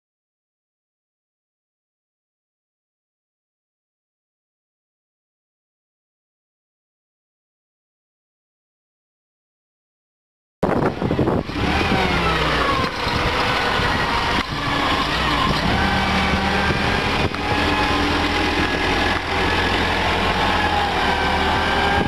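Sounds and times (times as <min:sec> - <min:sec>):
forklift engine running: 0:10.7 - 0:22.0
whine gliding in pitch: 0:10.8 - 0:22.0.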